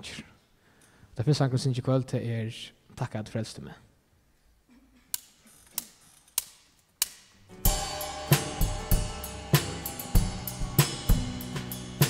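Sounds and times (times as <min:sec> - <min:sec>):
acoustic guitar: 0:07.5 - 0:12.0
drum kit: 0:07.5 - 0:12.0
electric bass: 0:07.6 - 0:12.0.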